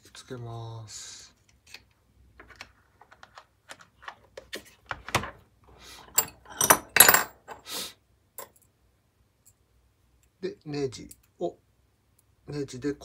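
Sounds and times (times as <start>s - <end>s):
clatter of screws and tools: 6.1s - 7.6s.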